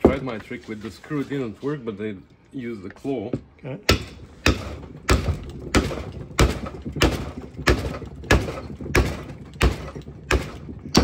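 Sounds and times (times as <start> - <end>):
hammer striking metal: 3.9 - 11.0.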